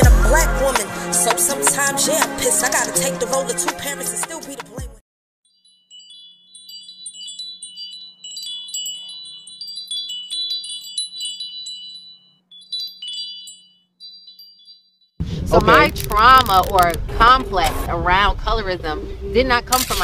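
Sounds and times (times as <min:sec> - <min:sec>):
wind chimes tinkling: 0:05.5 - 0:16.3.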